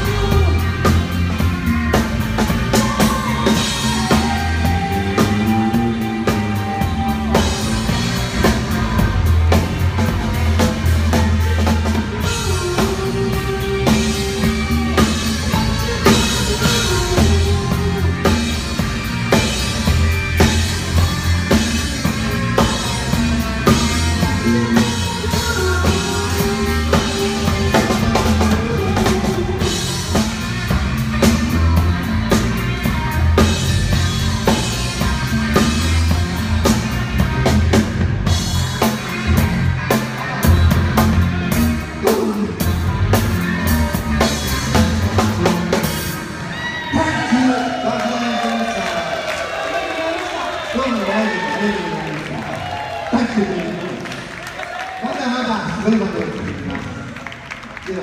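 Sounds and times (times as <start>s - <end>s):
drum kit: 0.0s - 50.4s
live rock band playing: 0.0s - 58.0s.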